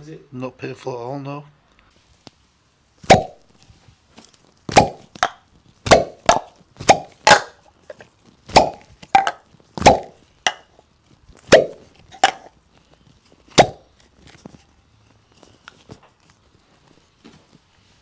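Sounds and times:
suction cups popping off skin: 3.0 - 3.6, 4.2 - 14.6.

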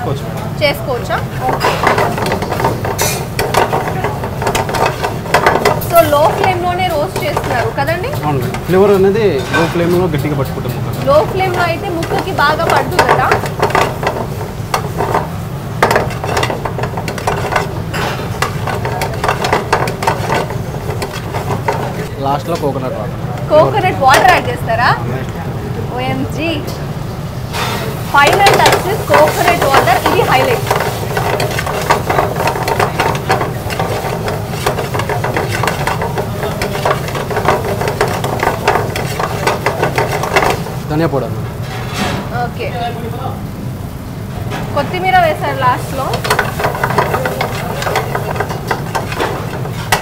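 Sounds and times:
metal ladle scraping pan: 1.4 - 22.7, 27.5 - 40.8, 46.0 - 50.0
chicken sizzling in frying pan: 11.0 - 22.5, 27.6 - 41.3, 44.8 - 50.0.

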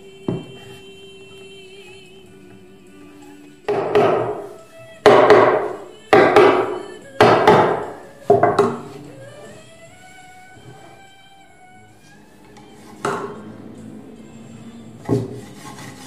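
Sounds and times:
soft background music: 0.0 - 16.0
heavy wooden knocks: 3.7 - 8.9.

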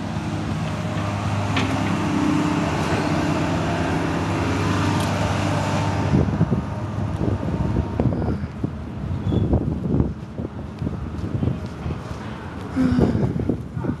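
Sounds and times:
excavator diesel engine running: 0.0 - 9.2
wind buffeting microphone: 0.0 - 14.0.

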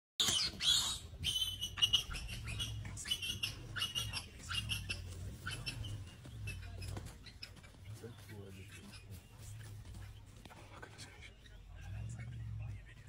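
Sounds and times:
high-pitched animal calls: 0.2 - 10.2.

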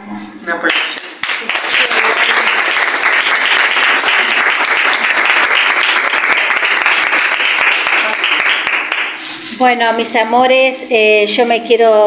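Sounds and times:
people applauding: 0.6 - 9.3.

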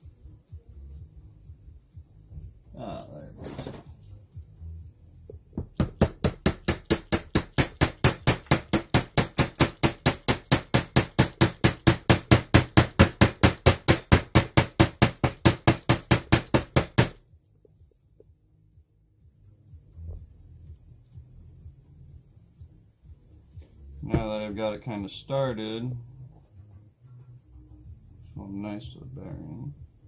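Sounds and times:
rapid hand-tool tapping: 5.6 - 17.2.

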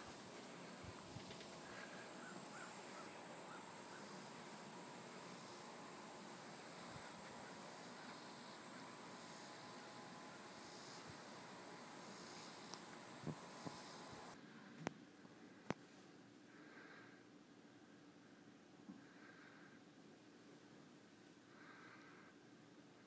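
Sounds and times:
high insect drone: 0.0 - 14.4.

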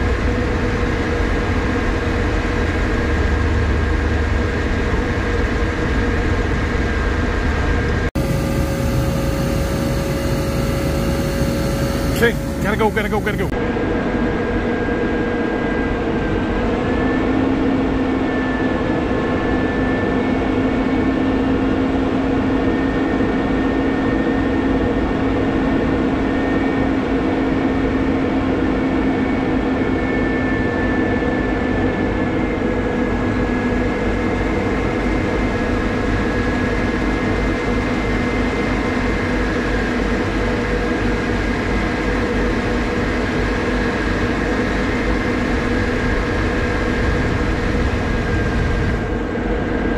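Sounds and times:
crane engine whining: 8.2 - 13.6.

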